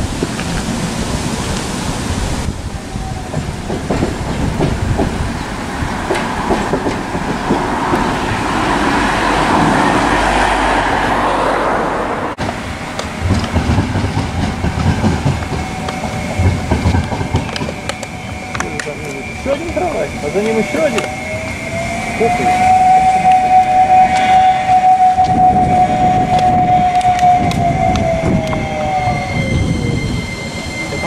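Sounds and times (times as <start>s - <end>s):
tram wheels clattering over rails: 0.0s - 11.2s, 12.4s - 31.0s
irregular wheel knocks: 3.4s - 5.4s, 13.0s - 18.7s.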